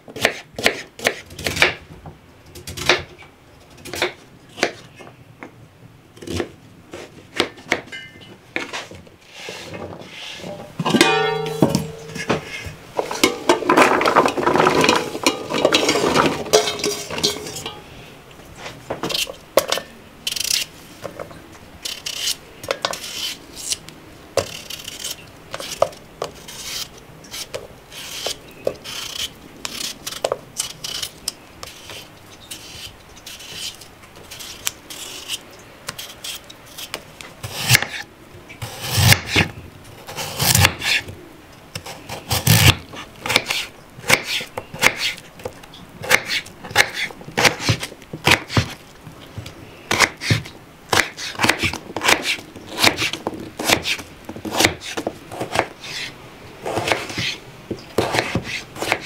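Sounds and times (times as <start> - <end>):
knife chopping on wooden board: 0.2 - 1.8, 49.9 - 56.1, 58.0 - 59.0
knife scraping potato skin: 20.2 - 20.7, 21.8 - 23.8, 24.4 - 38.0, 38.6 - 41.1, 41.8 - 45.2, 46.0 - 48.8, 49.9 - 57.4, 58.0 - 59.0.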